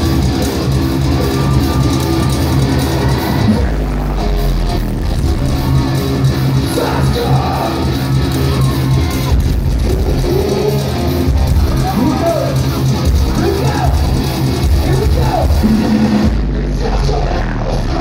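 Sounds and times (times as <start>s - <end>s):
heavy rock band playing live: 0.0s - 18.0s.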